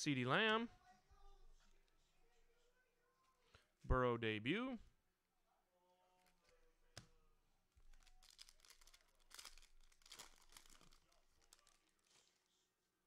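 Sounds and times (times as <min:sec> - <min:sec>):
foil wrapper tearing and crinkling: 0:07.9 - 0:12.6.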